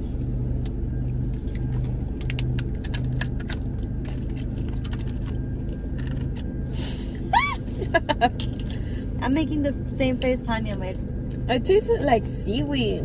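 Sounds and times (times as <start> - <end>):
car interior hum: 0.0 - 13.0
rice crackers crunching: 0.6 - 6.5.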